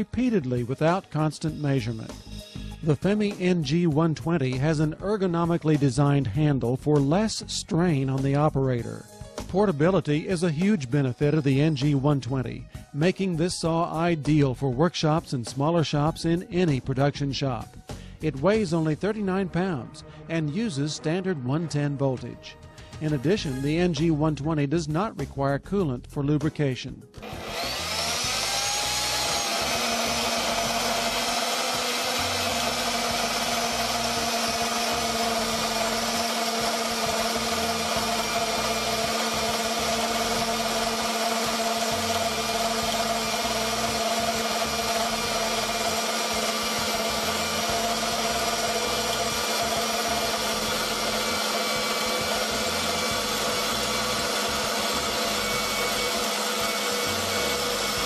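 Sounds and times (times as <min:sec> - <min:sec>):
band saw motor whine: 0:00.0 - 0:03.4, 0:27.2 - 0:58.0.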